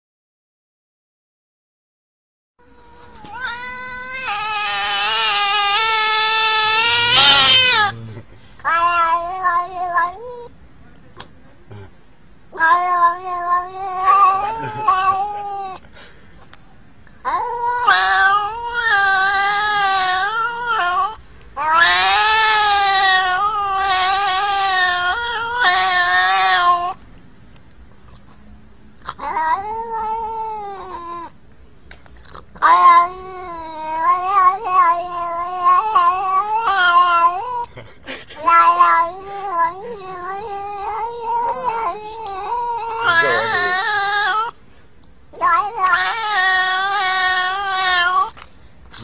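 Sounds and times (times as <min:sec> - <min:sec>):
cat meowing: 0:02.6 - 0:10.5, 0:12.5 - 0:15.8, 0:17.2 - 0:27.0, 0:29.0 - 0:31.4, 0:32.6 - 0:37.7, 0:38.4 - 0:44.6, 0:45.4 - 0:49.0.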